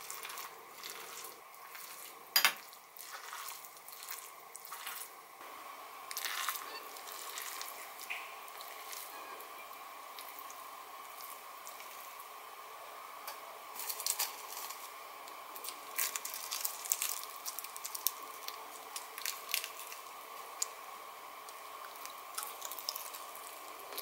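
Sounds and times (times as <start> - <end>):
faint steady hum: 0.0 - 24.0
spoon stirring sticky rice: 6.1 - 12.3
dry seaweed crackling: 15.6 - 20.7.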